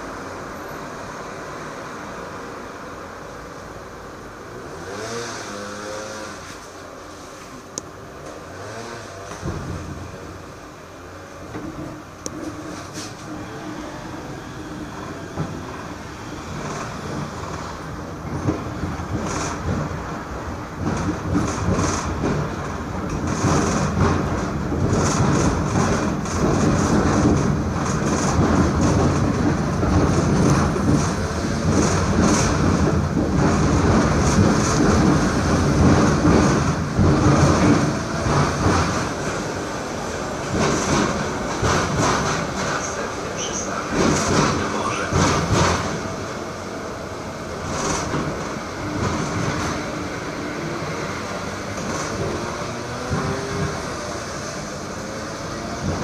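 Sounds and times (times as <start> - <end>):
tram running along track: 0.0 - 56.0
wheels clicking over rail joints: 11.3 - 56.0.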